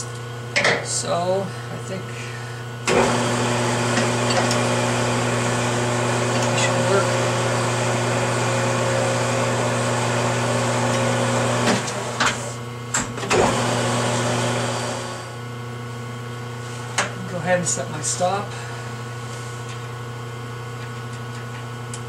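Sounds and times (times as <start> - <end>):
metal lathe humming: 2.8 - 12.6, 13.3 - 15.5.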